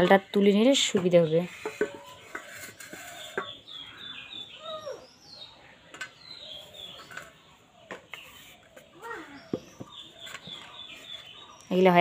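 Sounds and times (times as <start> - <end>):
birds chirping: 0.0 - 12.0
dough scraped onto steel plate: 1.4 - 3.4.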